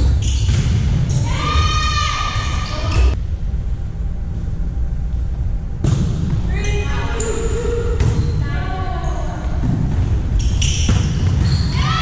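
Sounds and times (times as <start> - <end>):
low hall rumble: 0.0 - 12.0.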